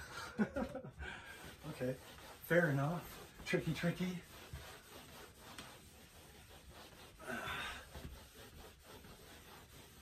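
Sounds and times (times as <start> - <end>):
eraser rubbing on chalkboard: 1.2 - 10.0.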